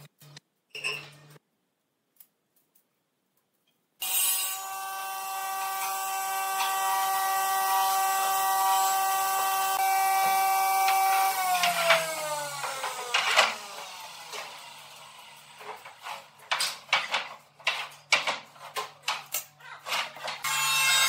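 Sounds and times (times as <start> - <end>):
power tool motor whine: 4.6 - 15.8.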